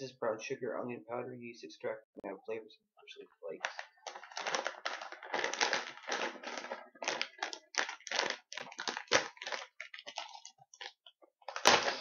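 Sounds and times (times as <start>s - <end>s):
chip bag crinkling: 3.6s - 12.0s.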